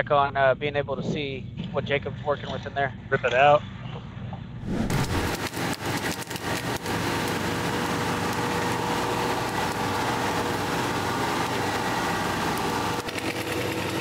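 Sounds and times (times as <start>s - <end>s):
sharp cracks and knocks: 4.6s - 7.4s
truck engine running: 4.6s - 14.0s.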